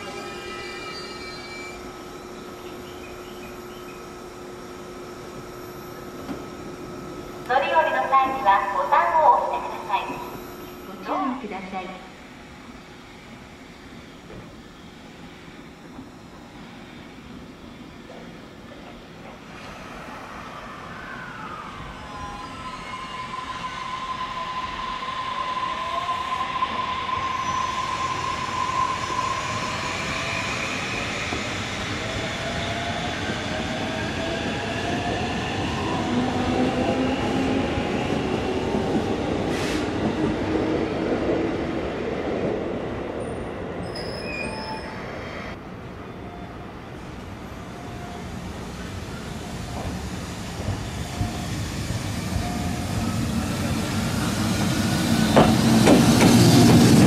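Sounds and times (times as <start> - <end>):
train wheels squealing: 0.0 - 4.0, 19.6 - 36.2, 43.2 - 57.0.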